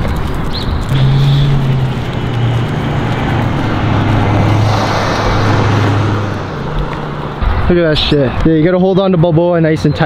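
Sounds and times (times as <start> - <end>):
low engine hum: 0.0 - 7.7
tyre noise: 0.0 - 8.6
vehicle passing: 0.0 - 9.3.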